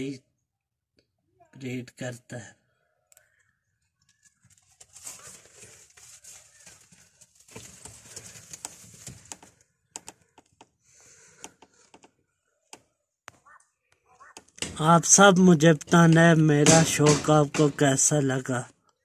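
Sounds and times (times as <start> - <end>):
pigeons rustling and shuffling: 4.1 - 11.9
sharp clicks: 8.5 - 10.7.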